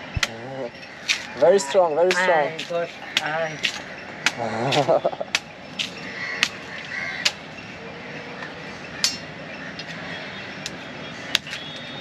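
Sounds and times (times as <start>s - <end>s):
machete chopping coconut: 2.1s - 6.6s.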